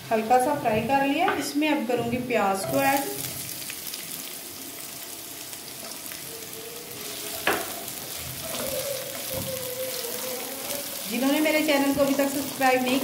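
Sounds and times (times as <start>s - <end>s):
onion sizzling in oil: 0.0s - 13.0s
spatula stirring in pan: 7.0s - 13.0s.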